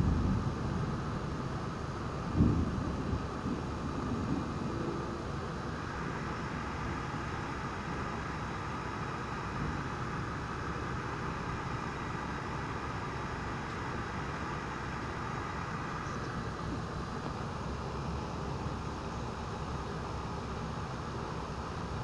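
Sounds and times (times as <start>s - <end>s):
steady rain hiss: 0.0s - 22.0s.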